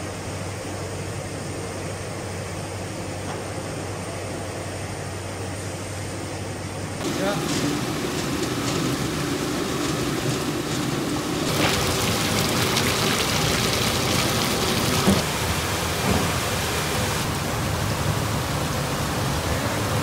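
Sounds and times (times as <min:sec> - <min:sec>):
water spraying and splashing: 0:07.0 - 0:20.0.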